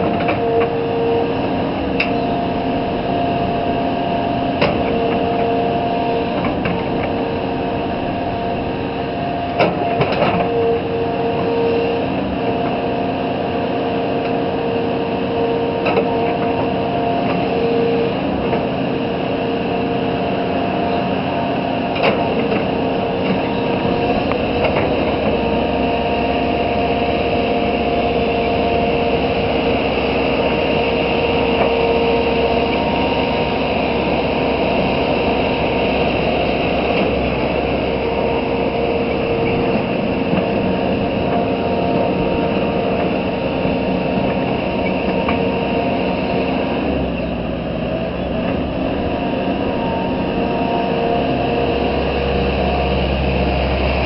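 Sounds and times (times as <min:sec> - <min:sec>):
excavator diesel engine droning: 0:00.0 - 0:54.0
high engine whine: 0:00.0 - 0:54.0.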